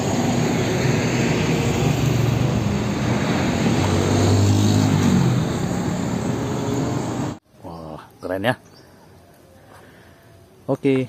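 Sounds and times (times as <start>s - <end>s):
truck diesel engine passing: 0.0s - 7.4s
road traffic: 0.0s - 7.9s.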